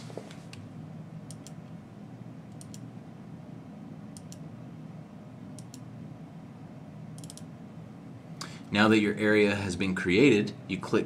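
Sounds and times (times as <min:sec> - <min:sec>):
steady low hum: 0:00.0 - 0:11.0
computer mouse button clicking: 0:07.2 - 0:07.5.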